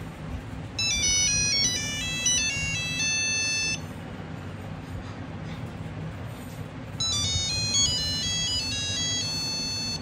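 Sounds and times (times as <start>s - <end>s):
mobile phone monophonic ringtone: 0.8s - 3.9s, 7.0s - 10.0s.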